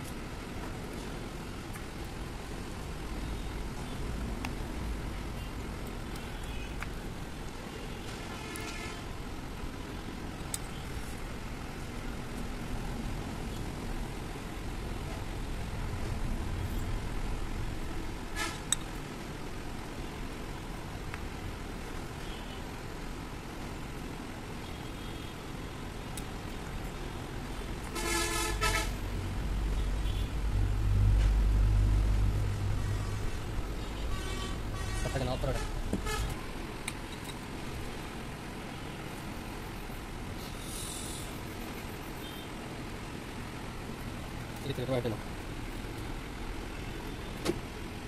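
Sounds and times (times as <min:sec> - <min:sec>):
low traffic rumble: 0:00.0 - 0:48.0
vehicle horn honking: 0:08.3 - 0:09.1, 0:28.0 - 0:29.0, 0:33.9 - 0:36.4.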